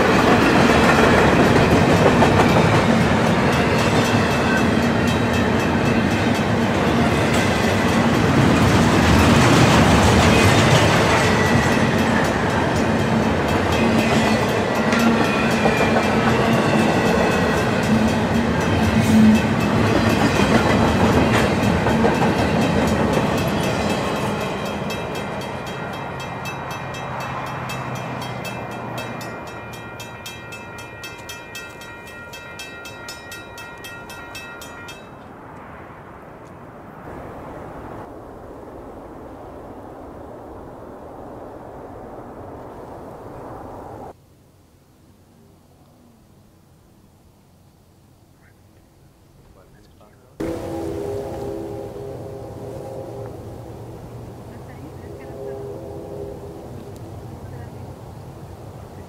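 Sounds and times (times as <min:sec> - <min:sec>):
train wheels on rail: 0:00.0 - 0:35.7.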